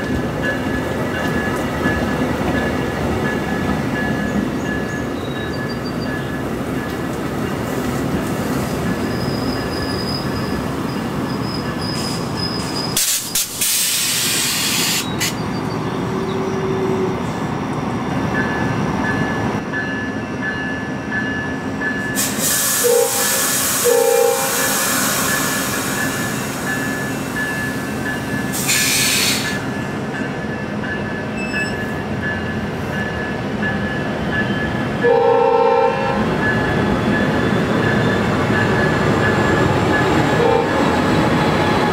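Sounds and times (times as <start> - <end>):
train wheels rumbling on track: 0.0 - 41.9
wheel squeal: 9.0 - 13.0
train horn blasts: 22.7 - 25.9, 35.0 - 36.4, 40.4 - 40.9.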